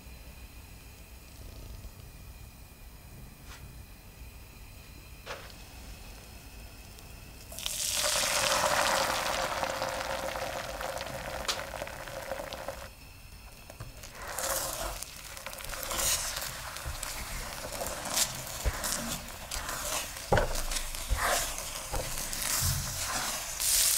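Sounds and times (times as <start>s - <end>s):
hiss of heating oil: 5.3s - 23.9s
egg sizzling in hot oil: 7.4s - 23.9s.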